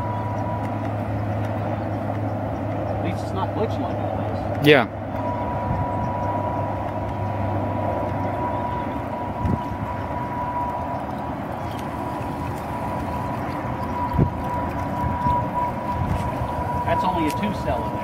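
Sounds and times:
electric motor whine: 0.0 - 18.0.

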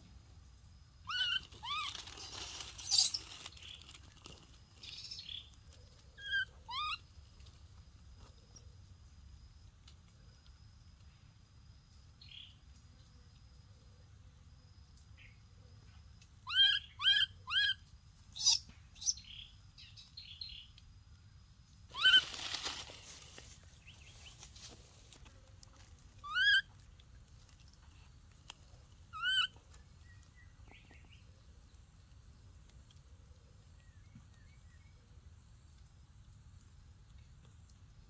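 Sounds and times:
baby monkey crying: 1.1 - 2.2, 6.2 - 7.0, 16.5 - 17.8, 21.9 - 22.3, 26.2 - 26.6, 29.2 - 29.5
dry leaves rustling: 1.4 - 5.3, 21.9 - 26.2.

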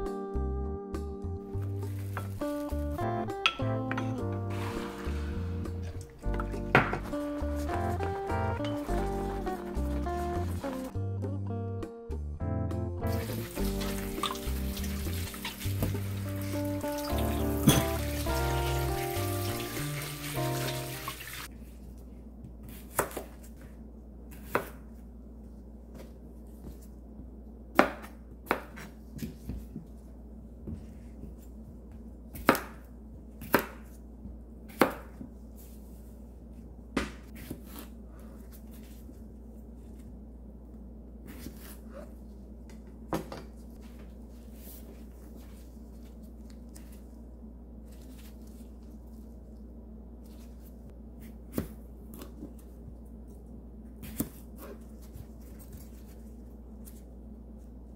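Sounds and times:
knife chopping cucumber on board: 22.6 - 23.4, 24.3 - 24.8, 32.3 - 34.0.

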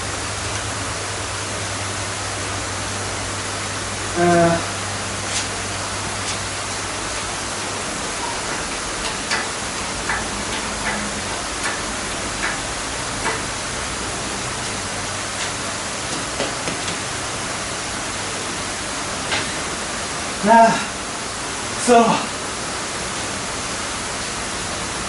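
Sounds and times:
steady hiss: 0.0 - 25.0
engine hoist clicks and knocks: 8.2 - 13.6.

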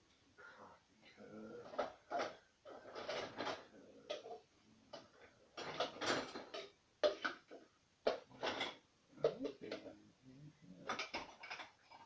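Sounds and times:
dishes and cutlery clattering: 1.6 - 9.9, 10.8 - 12.0.

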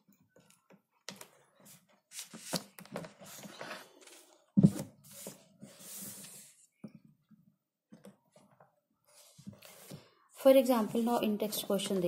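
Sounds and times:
paper pages rustling: 1.1 - 6.5.

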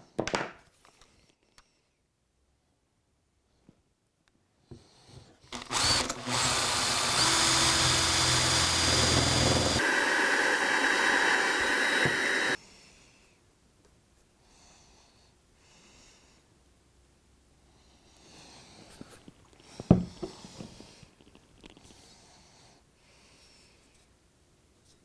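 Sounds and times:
power drill boring into wood: 5.5 - 12.6.

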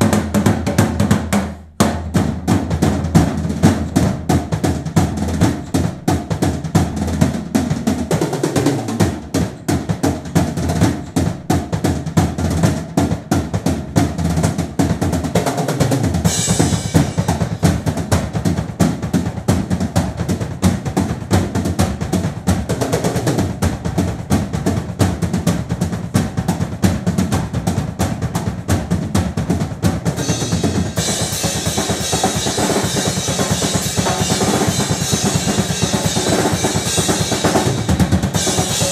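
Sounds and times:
drum kit solo: 0.0 - 38.9
cymbal crash: 16.3 - 17.7, 30.2 - 38.9
wash of cymbals: 30.2 - 38.9.

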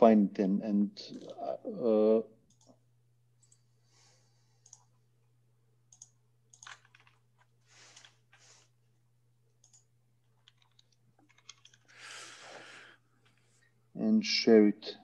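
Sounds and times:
low steady hum: 0.0 - 15.0
keyboard and mouse clicking: 4.6 - 4.9, 5.9 - 8.2, 9.6 - 11.9.

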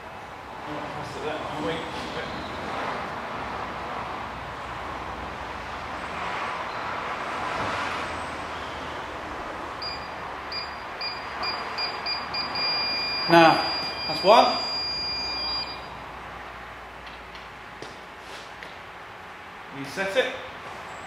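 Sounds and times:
short high beeps: 9.8 - 16.0.

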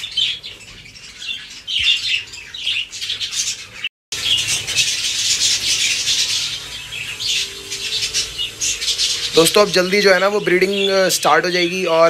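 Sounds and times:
budgerigars chirping and chattering: 0.0 - 12.0.

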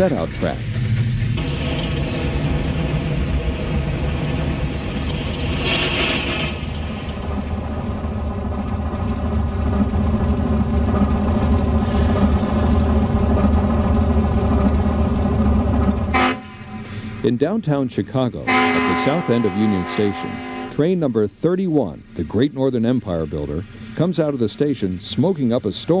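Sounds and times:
diesel locomotive engine running: 0.0 - 26.0.

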